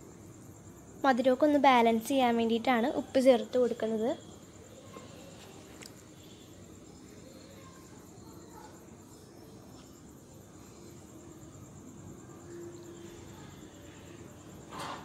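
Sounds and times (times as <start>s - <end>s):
cricket chirping: 0.0s - 15.0s
low room noise: 0.0s - 15.0s.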